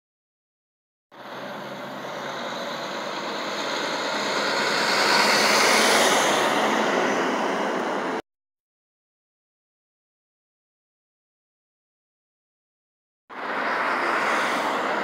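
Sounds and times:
truck diesel engine passing: 1.2s - 8.2s, 13.3s - 15.0s.

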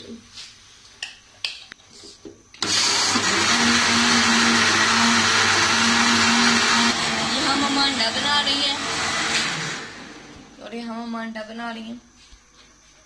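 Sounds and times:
electric blender running: 2.6s - 10.6s.

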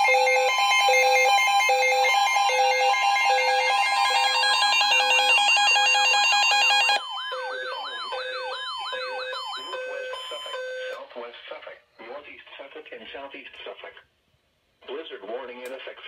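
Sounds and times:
electronic alarm beeps: 0.0s - 11.0s
warbling siren-like tone: 0.0s - 11.0s.

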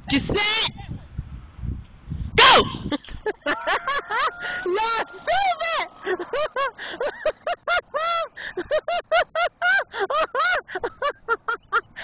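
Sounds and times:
woman laughing hard: 2.7s - 12.0s.

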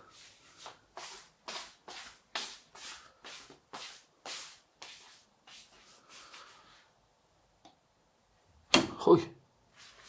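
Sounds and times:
footsteps shuffling on tile: 0.0s - 7.0s, 9.7s - 10.0s.

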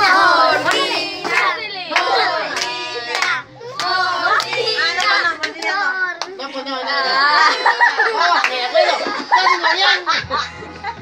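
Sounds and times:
rhythmic hand clapping: 0.0s - 6.4s, 8.3s - 8.9s
voices: 0.0s - 11.0s.

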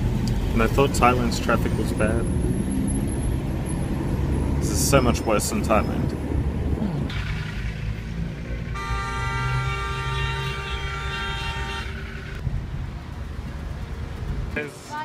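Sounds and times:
traffic rumble inside car: 0.0s - 15.0s
vehicle horn blast: 8.8s - 12.4s.

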